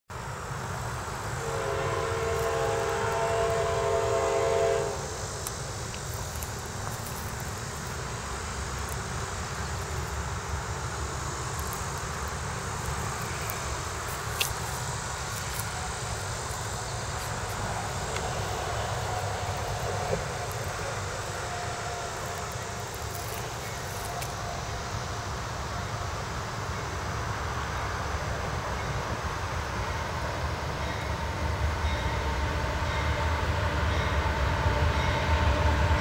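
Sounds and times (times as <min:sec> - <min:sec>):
distant diesel locomotives rumbling: 0:00.1 - 0:36.0
locomotive air horn chord: 0:01.2 - 0:05.4, 0:16.8 - 0:24.8, 0:31.0 - 0:36.0.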